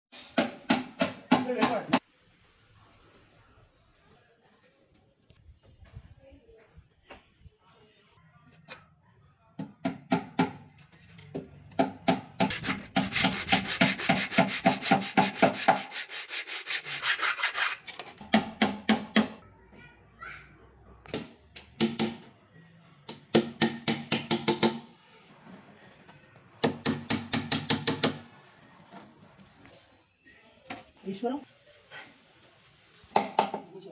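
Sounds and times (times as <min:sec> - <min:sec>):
hand saw cutting wood: 0:12.4 - 0:18.2.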